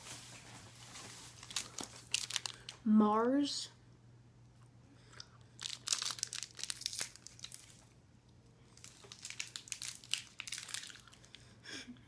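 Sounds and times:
plastic wrapper crinkling: 0.0 - 2.8, 5.6 - 7.9, 8.7 - 11.4.

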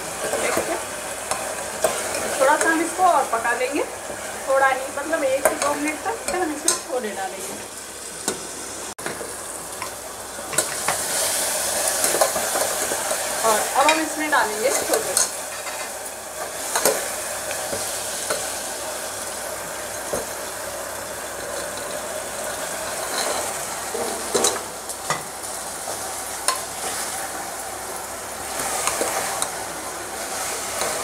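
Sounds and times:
masala sizzling in a pot: 0.0 - 31.0
ladle stirring and scraping: 22.9 - 25.2.

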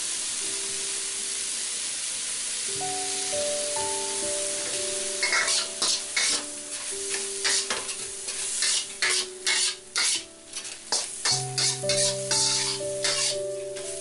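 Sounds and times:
food sizzling in a wok: 0.0 - 14.0
soft background music: 0.2 - 14.0
metal spatula scraping a wok: 5.2 - 14.0.

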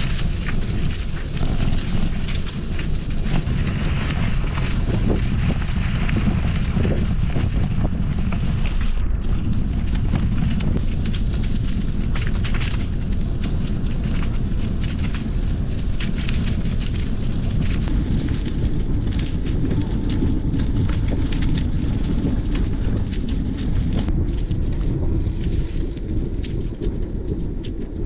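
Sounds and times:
bike tyres rolling on dirt trail: 0.0 - 28.0
tyres crackling over dry leaves: 0.0 - 28.0
wind rumble on microphone: 0.0 - 28.0.

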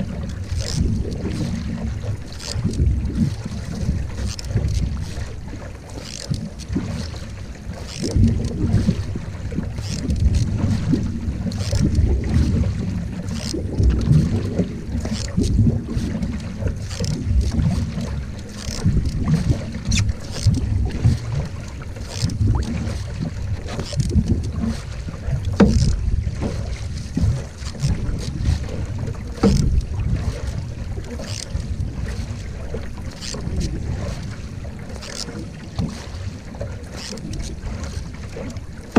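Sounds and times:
paddle strokes splashing water: 0.0 - 38.9
wind buffeting microphone: 7.6 - 34.8.

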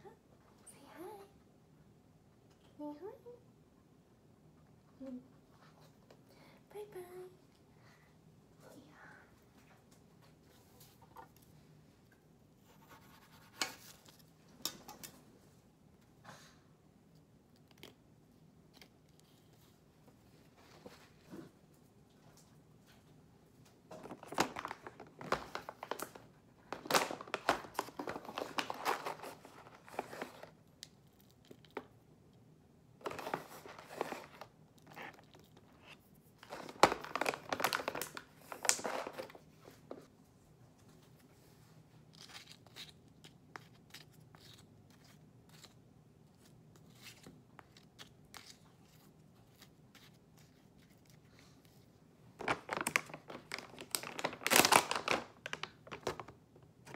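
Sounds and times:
plastic snack bags crinkling: 24.0 - 30.6, 33.0 - 39.4, 52.4 - 56.9.

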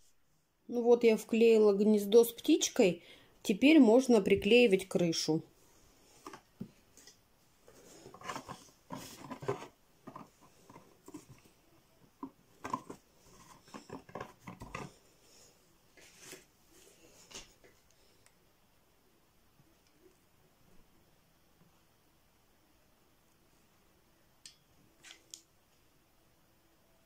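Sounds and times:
cardboard tapping and rustling: 8.0 - 11.5, 12.2 - 15.0.

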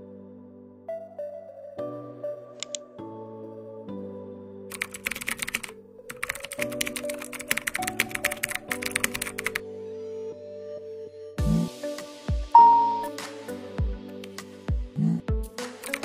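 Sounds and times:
soft background music: 0.0 - 16.0
keyboard typing clicks: 2.6 - 2.8, 4.7 - 9.6, 15.8 - 16.0.

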